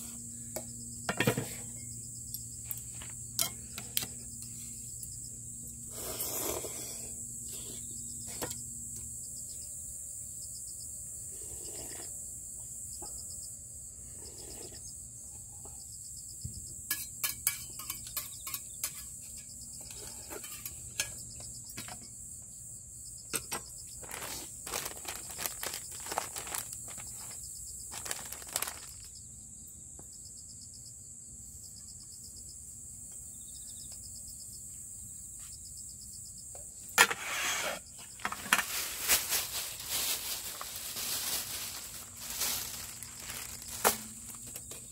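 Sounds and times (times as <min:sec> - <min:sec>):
crickets and insects chirring: 0:00.0 - 0:44.9
slurping noodles and broth: 0:05.9 - 0:07.1.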